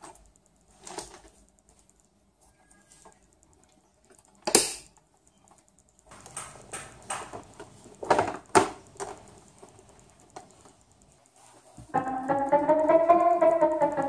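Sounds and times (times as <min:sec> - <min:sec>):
plastic keyboard knocks and clatter: 0:06.1 - 0:09.4.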